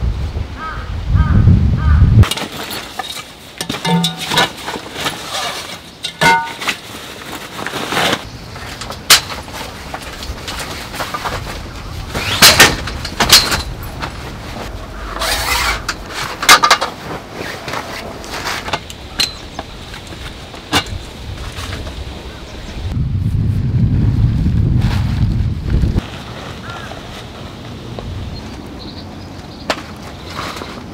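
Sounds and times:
tent poles knocking and clinking: 2.2 - 22.1
tent fabric rustling: 2.3 - 19.2, 24.8 - 28.6.

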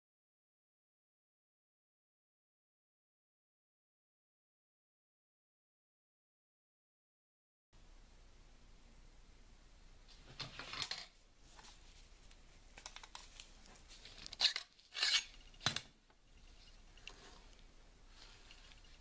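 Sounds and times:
rustling scrape of handling: 13.2 - 15.7, 16.4 - 19.0.

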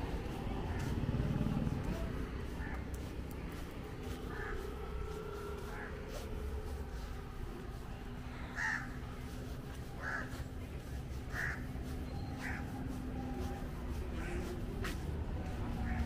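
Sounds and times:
low street background: 0.0 - 16.0
bird calling: 11.3 - 13.4.

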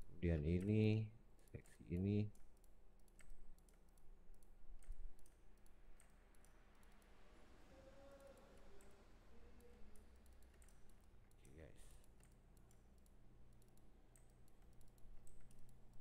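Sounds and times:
computer mouse clicks: 1.5 - 7.3, 8.0 - 16.0.

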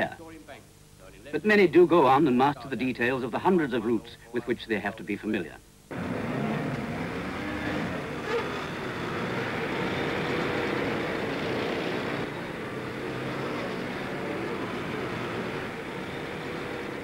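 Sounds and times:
road traffic: 5.9 - 17.0.

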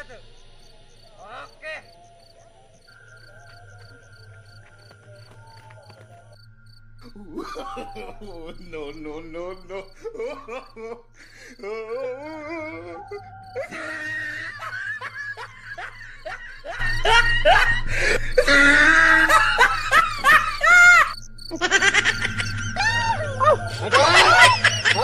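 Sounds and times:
laughter and shrieks: 1.3 - 6.4, 7.0 - 25.0
music: 13.8 - 25.0.

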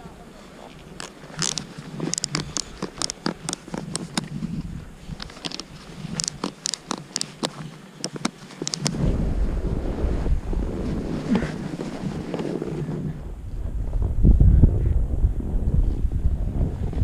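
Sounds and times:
wind rumble on microphone: 0.0 - 7.8, 8.7 - 17.0
binding straps ratcheting clicks: 1.0 - 9.0.

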